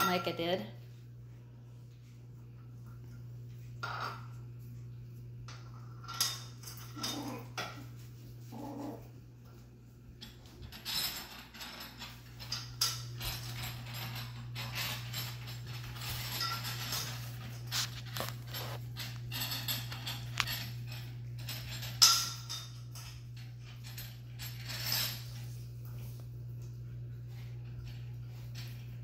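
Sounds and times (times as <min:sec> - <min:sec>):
steady low hum: 0:00.0 - 0:29.0
puppy noises: 0:06.8 - 0:09.4.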